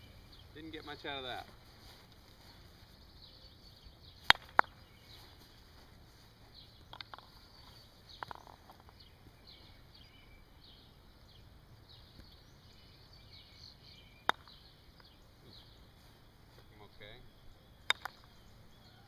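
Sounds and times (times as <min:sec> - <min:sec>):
mallet striking croquet balls: 0:04.2 - 0:04.8, 0:06.9 - 0:09.0, 0:14.2 - 0:14.6, 0:17.8 - 0:18.4.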